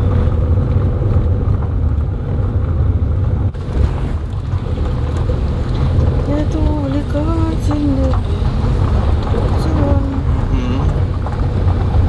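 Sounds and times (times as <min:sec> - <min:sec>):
car driving on rough road: 0:00.0 - 0:12.0.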